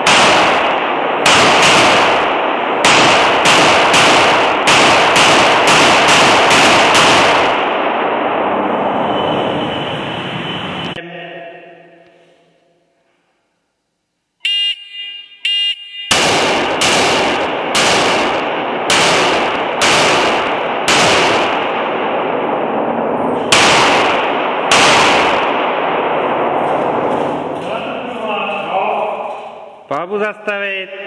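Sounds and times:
handgun shots echoing indoors: 0.0s - 7.7s, 16.0s - 21.9s, 23.4s - 27.7s
short electronic beeps: 14.4s - 16.2s.

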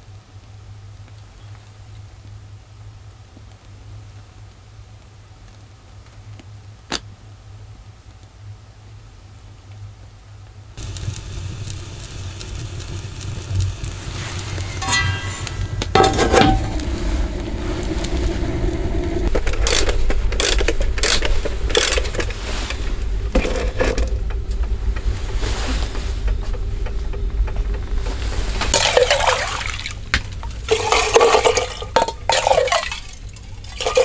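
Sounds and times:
wood fire rumbling: 8.8s - 34.0s
fire cracks and pops: 9.7s - 34.0s
stove door scraping and clanking: 14.0s - 18.2s, 20.7s - 24.3s.

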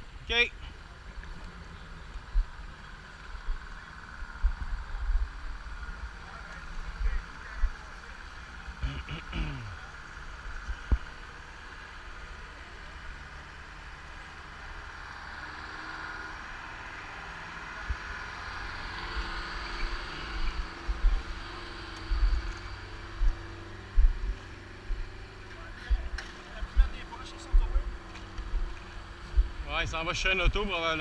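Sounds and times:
vehicle engine running: 0.0s - 31.0s
heavy low thumps: 23.2s - 25.0s.

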